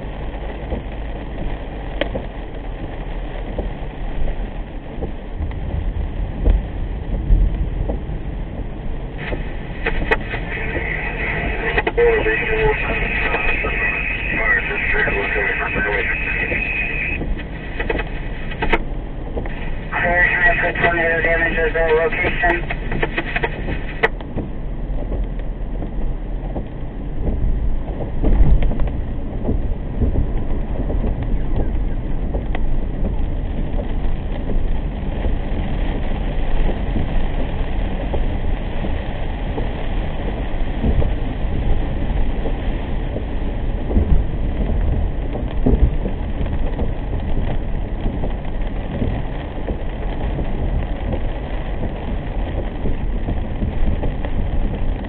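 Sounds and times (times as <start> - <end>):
rain pattering on car: 0.0 - 55.0
tyre noise on wet road: 0.0 - 55.0
low thumps: 4.9 - 35.5.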